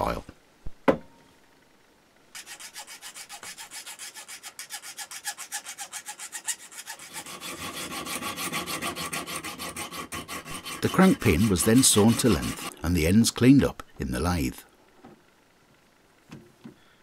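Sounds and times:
metal pin being sawn: 2.3 - 12.8
needle file rasping on brass: 2.4 - 12.8.

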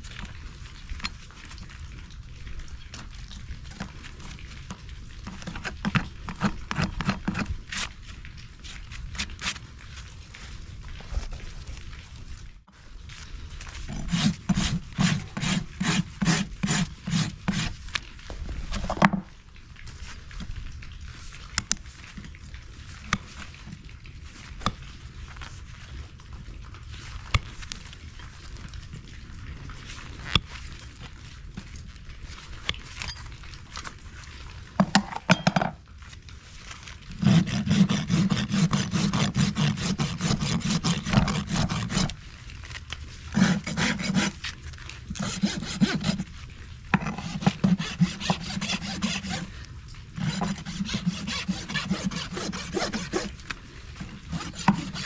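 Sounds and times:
rasp filing a hoof: 13.9 - 17.8, 37.2 - 42.2, 43.3 - 44.5, 45.1 - 46.3, 47.0 - 49.5, 50.2 - 53.4, 54.0 - 55.0.

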